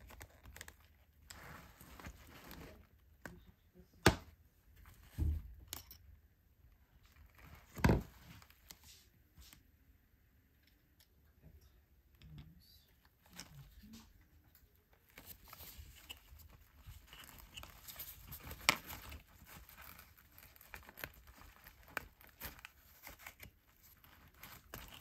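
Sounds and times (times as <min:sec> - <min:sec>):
faint fabric rustling: 0:00.0 - 0:03.3.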